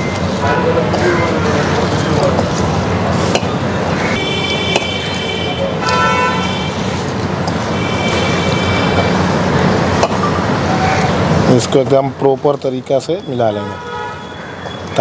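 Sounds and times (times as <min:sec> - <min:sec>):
vehicle horns honking: 0:00.0 - 0:02.2, 0:04.0 - 0:07.0, 0:07.7 - 0:09.3, 0:13.2 - 0:15.0
road traffic: 0:00.0 - 0:15.0.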